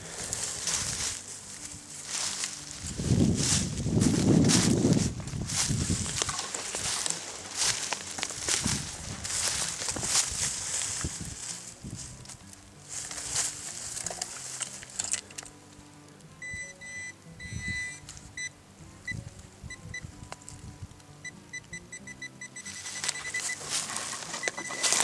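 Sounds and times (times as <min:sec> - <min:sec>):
soil digging scraping and knocking: 0:00.0 - 0:15.5, 0:22.7 - 0:25.0
pinpointer beeping: 0:16.4 - 0:20.1, 0:21.2 - 0:23.7, 0:24.3 - 0:25.0.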